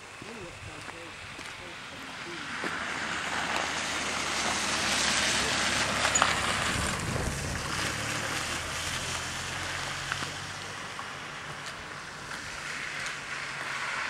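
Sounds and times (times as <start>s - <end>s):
car driving past on wet road: 1.1s - 14.0s
wind noise on microphone: 5.5s - 9.0s.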